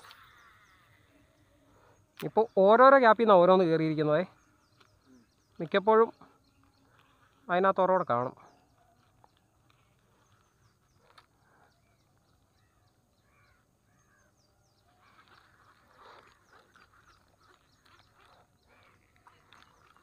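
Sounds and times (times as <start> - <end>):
faint duck quacks: 18.2 - 19.7.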